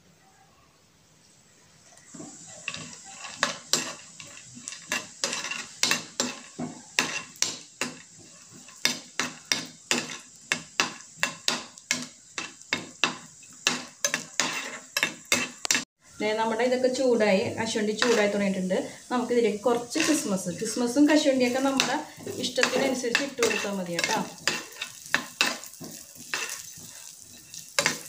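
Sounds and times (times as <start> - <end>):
metal spoon scraping frying pan: 2.1 - 15.9, 17.6 - 18.6, 19.5 - 28.0.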